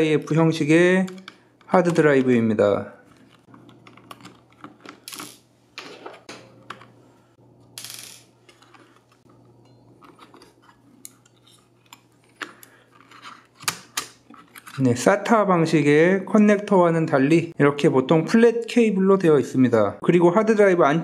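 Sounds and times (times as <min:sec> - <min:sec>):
fingers handling flat cable: 0:01.0 - 0:07.0, 0:08.5 - 0:14.8.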